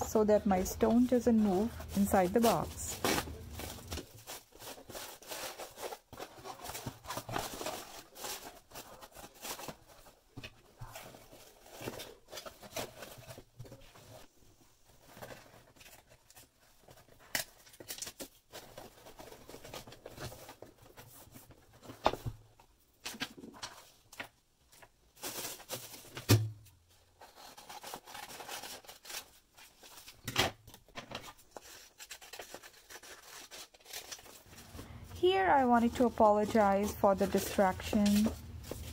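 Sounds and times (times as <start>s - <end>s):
paper rustling: 0.2s - 14.3s, 27.2s - 38.9s.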